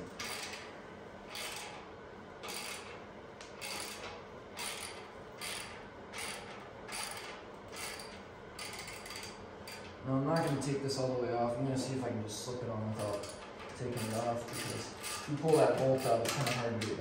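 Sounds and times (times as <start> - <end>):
ratchet wrench clicking: 2.5 - 2.9, 3.5 - 10.5.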